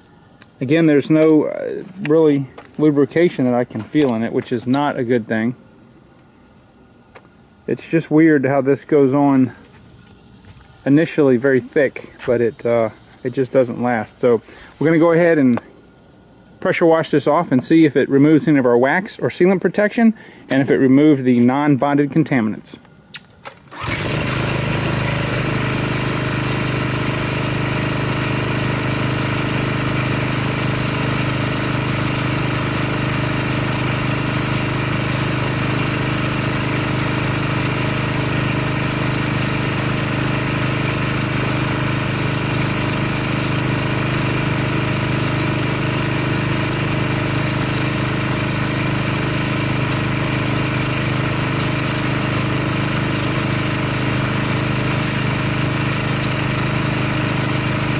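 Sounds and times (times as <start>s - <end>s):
pressure washer spray hissing: 23.7s - 57.9s.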